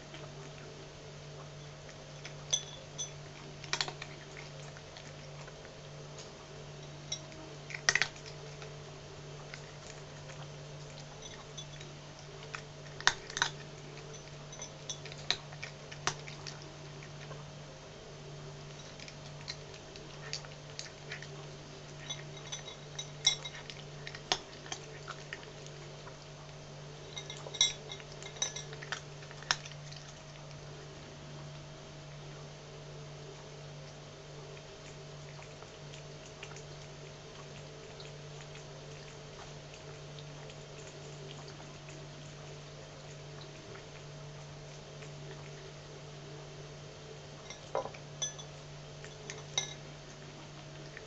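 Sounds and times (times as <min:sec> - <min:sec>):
steady low hum: 0:00.0 - 0:51.0
cat crunching dry kibble: 0:03.2 - 0:17.5, 0:18.6 - 0:30.9.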